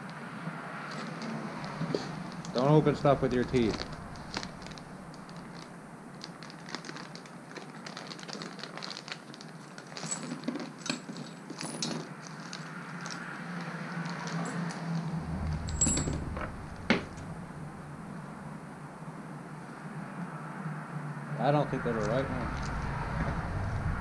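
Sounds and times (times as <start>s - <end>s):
low rumble: 2.1s - 6.6s, 15.0s - 19.0s, 22.2s - 24.0s
plastic bag crinkling: 3.4s - 15.6s
small hardware clicking and clattering: 10.0s - 12.1s.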